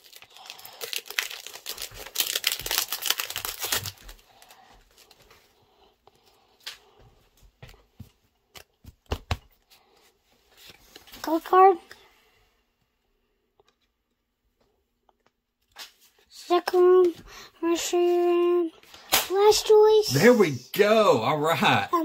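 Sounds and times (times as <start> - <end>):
foil wrapper crinkling and tearing: 0.0 - 5.2
trading cards clicking and rustling: 0.5 - 4.6.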